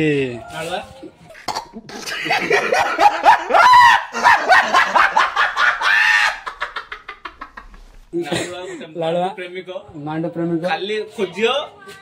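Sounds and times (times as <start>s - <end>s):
man laughing loudly: 1.9s - 7.8s.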